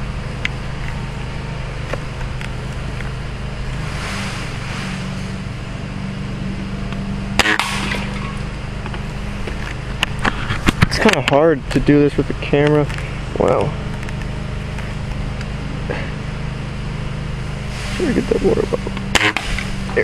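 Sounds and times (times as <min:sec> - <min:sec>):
lawn mower engine droning: 0:00.0 - 0:20.0
airsoft rifle firing snap: 0:07.4 - 0:08.2, 0:19.1 - 0:19.8.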